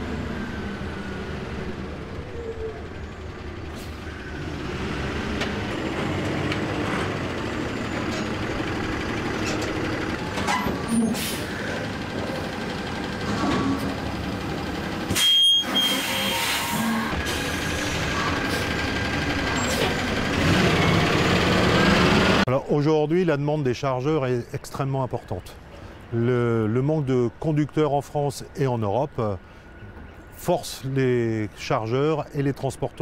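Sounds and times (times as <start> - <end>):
diesel engine running: 0.0 - 22.5.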